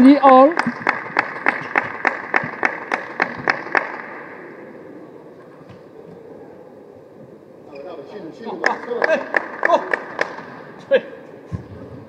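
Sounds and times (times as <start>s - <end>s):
rhythmic hand clapping: 0.0s - 4.2s, 8.6s - 10.6s
faint hall hum: 0.0s - 12.0s.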